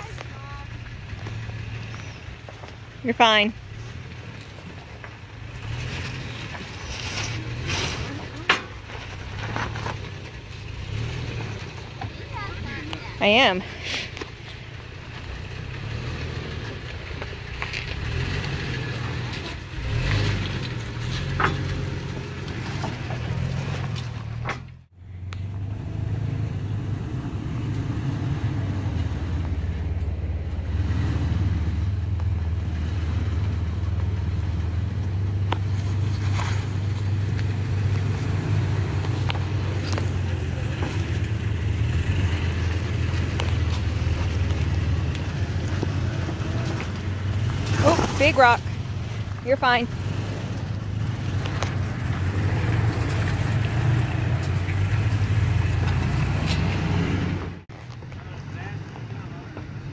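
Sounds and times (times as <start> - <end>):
truck engine and tyres rumbling: 0.0 - 59.9.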